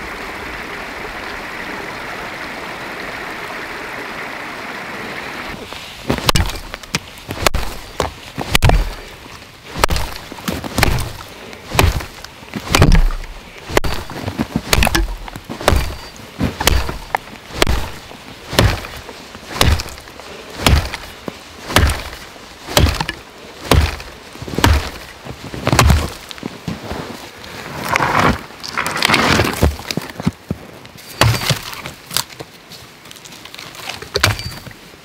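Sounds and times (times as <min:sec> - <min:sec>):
axe chopping into log: 0:06.1 - 0:09.0, 0:09.8 - 0:20.0, 0:20.6 - 0:21.1, 0:21.7 - 0:25.0, 0:25.7 - 0:26.2, 0:31.2 - 0:31.6.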